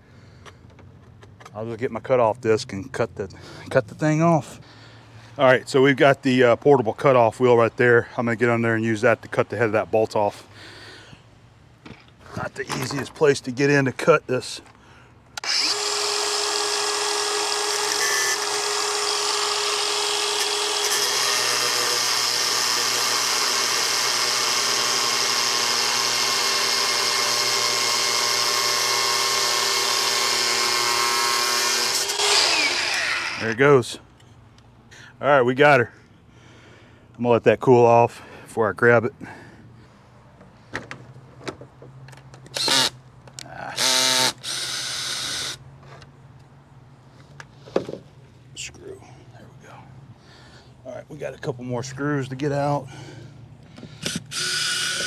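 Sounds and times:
cordless drill whirring: 15.4s - 33.5s, 42.5s - 43.0s, 43.8s - 45.6s, 53.8s - 55.0s
angle grinder cutting metal: 15.4s - 33.6s, 43.8s - 45.6s, 54.0s - 55.0s.

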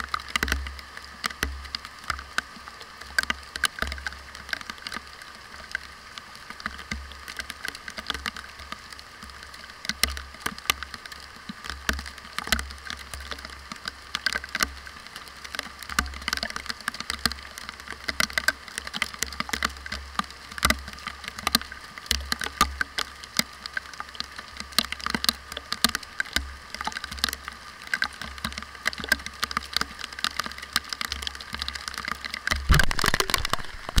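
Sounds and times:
rain hissing on ground: 0.0s - 34.0s
raindrops tapping on camera case: 0.0s - 34.0s
camera bumps: 32.7s - 34.0s.

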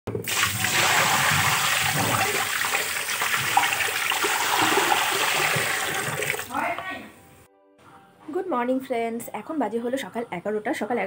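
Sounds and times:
water splashing onto tiled floor: 0.2s - 6.5s.

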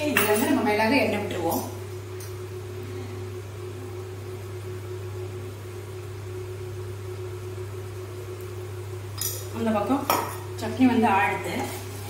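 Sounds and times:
low machine drone: 2.2s - 5.6s.

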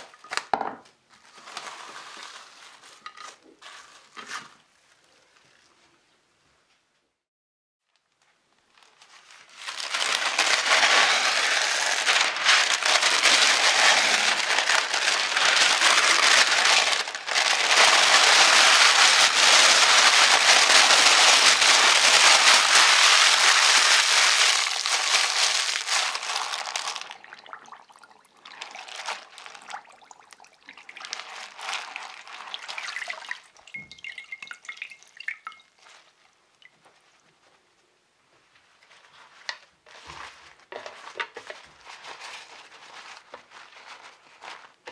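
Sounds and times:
baking paper crumpling: 0.0s - 5.9s, 7.9s - 27.3s, 28.4s - 30.2s, 30.8s - 33.6s, 38.6s - 44.9s
wet paper rustling and squishing: 1.1s - 5.8s, 7.9s - 37.2s, 38.7s - 44.9s
water dripping into bowl: 33.1s - 35.8s.

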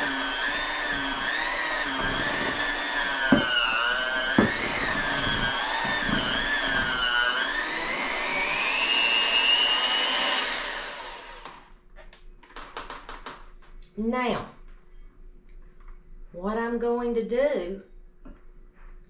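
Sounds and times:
electric hand mixer whining: 0.0s - 11.7s.

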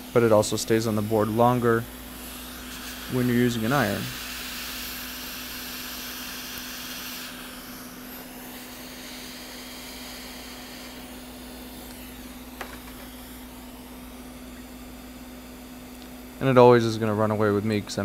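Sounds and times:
hot air blower hissing: 0.0s - 18.0s.

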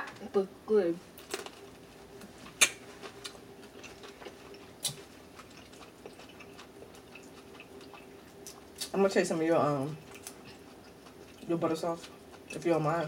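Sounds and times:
chewing and lip smacks: 2.6s - 9.0s, 9.9s - 12.6s.

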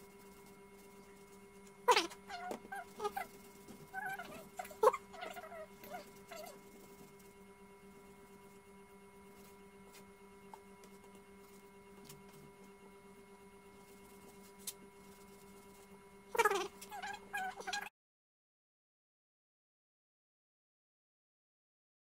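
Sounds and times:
steady electrical hum: 0.0s - 17.9s
wavering animal-like call: 1.8s - 6.9s, 16.3s - 17.9s.

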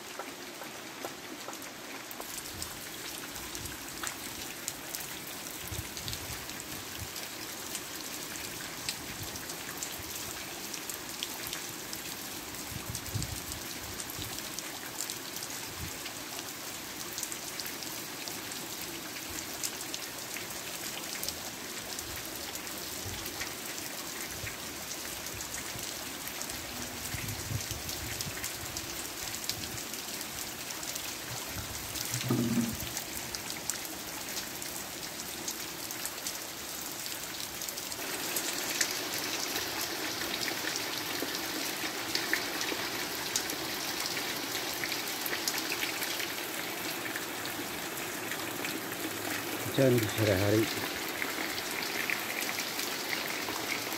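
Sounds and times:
rain on pond: 0.0s - 53.9s.

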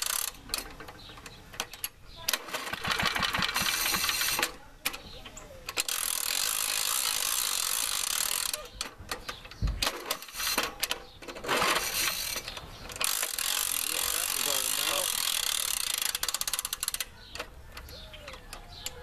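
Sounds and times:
mower recoil starter cranking: 2.3s - 4.6s, 5.7s - 17.6s.

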